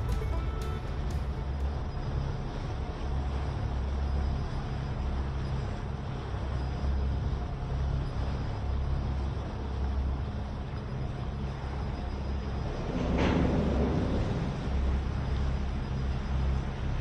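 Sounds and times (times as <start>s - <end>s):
water noise: 0.0s - 4.0s
motorboat engine humming: 0.0s - 12.9s.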